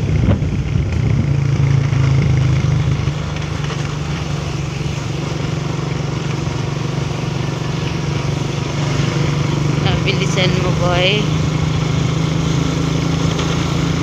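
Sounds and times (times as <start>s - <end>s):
road and wind noise: 0.0s - 14.0s
vehicle engine running: 0.0s - 14.0s.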